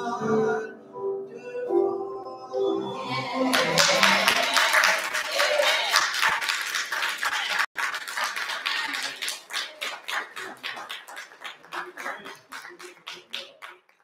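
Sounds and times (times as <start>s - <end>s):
applause and hand claps: 3.5s - 14.0s.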